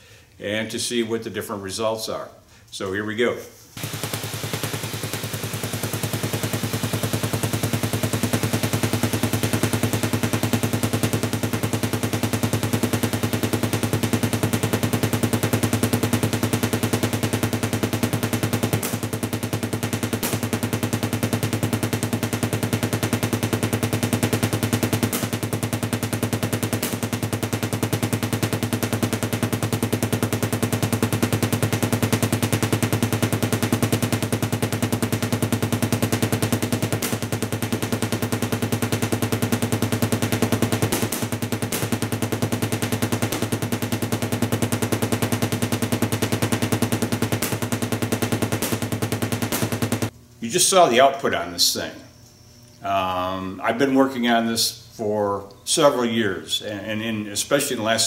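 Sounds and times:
sharp electric cracks: 3.8s - 50.2s
tesla coil arcs buzzing: 3.8s - 55.1s.

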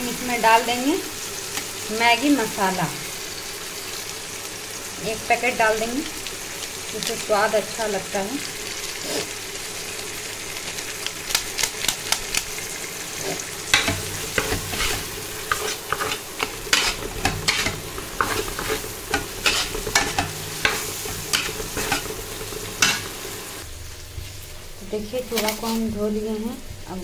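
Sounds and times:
frying sizzle: 0.0s - 27.0s
metal spatula scraping pan: 13.2s - 23.2s.

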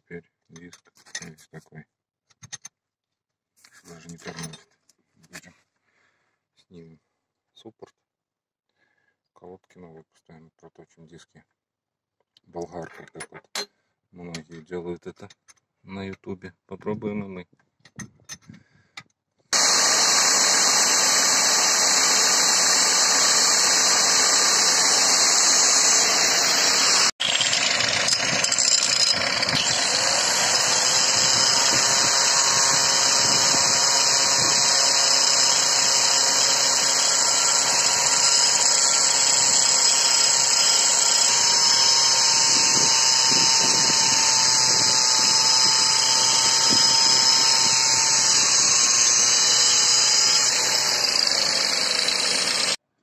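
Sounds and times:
angle grinder grinding metal: 19.5s - 52.8s.

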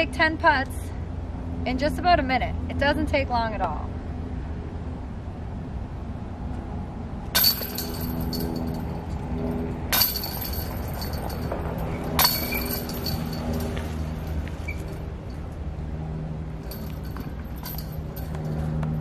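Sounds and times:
golf discs hitting metal chains: 7.4s - 9.3s, 9.9s - 15.5s, 16.6s - 19.0s.

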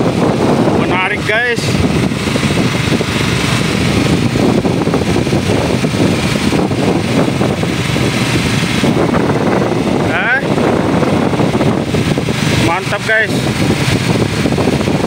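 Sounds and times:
boat motor running: 0.0s - 15.0s.

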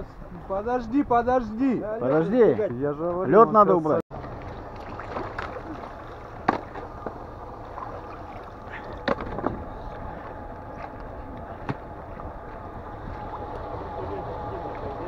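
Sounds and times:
car engine idling rumble: 4.2s - 15.0s.

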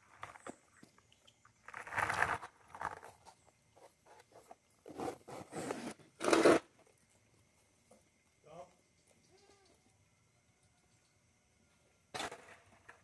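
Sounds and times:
scraping and rubbing: 1.7s - 6.7s.

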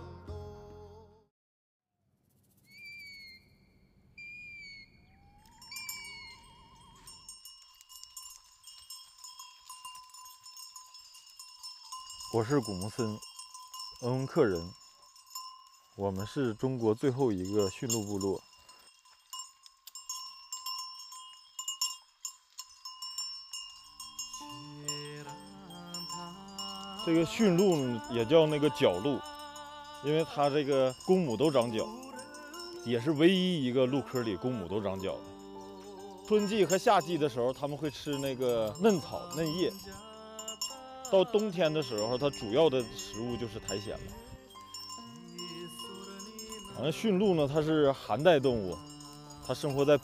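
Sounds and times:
birds calling with whistled notes: 2.7s - 7.3s, 34.8s - 38.7s
small bells jingling: 5.3s - 50.0s.

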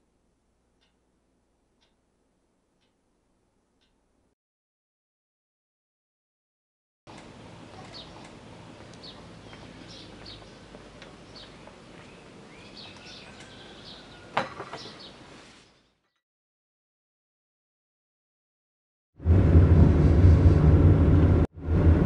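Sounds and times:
outdoor background hum: 0.0s - 4.3s, 7.1s - 16.2s, 19.2s - 22.0s
small birds chirping: 7.1s - 16.2s.

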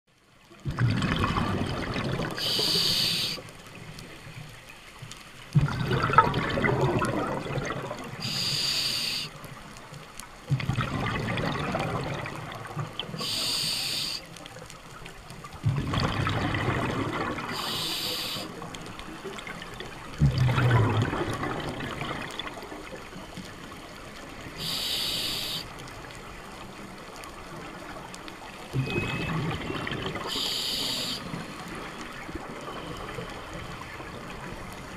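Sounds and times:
exhale bubbling underwater: 0.6s - 3.4s, 5.6s - 9.3s, 10.5s - 14.2s, 15.6s - 23.4s, 28.7s - 34.9s
regulator inhale hiss: 2.4s - 3.5s, 8.2s - 9.4s, 13.2s - 14.3s, 17.5s - 18.6s, 24.6s - 25.8s, 30.3s - 31.6s.

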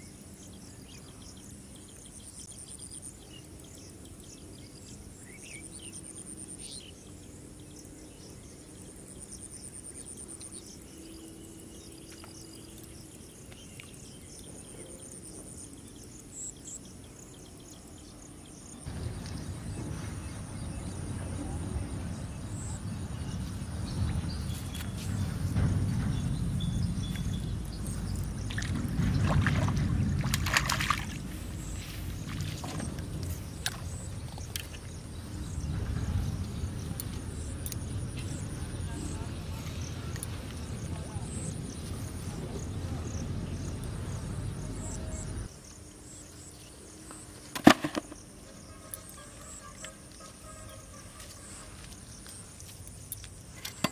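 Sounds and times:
low rumble: 18.9s - 45.5s
fish splashing at water surface: 28.2s - 31.7s.

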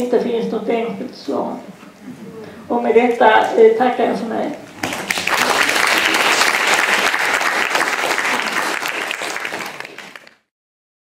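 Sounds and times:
audience applauding: 4.7s - 10.5s.

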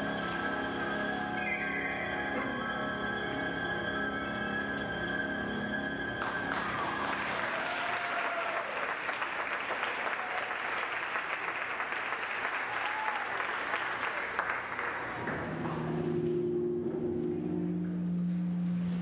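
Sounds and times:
audience applauding: 6.2s - 15.6s.

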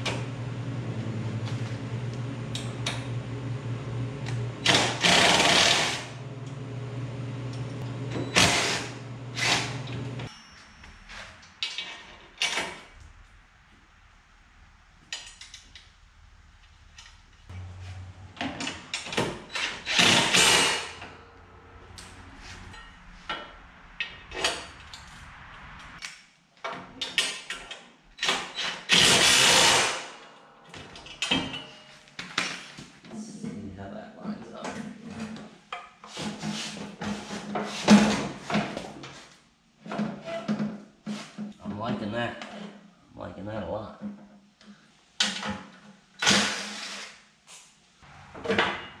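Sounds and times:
cordless drill bursts: 4.6s - 6.2s, 8.3s - 9.8s, 19.6s - 21.0s, 28.6s - 30.1s.

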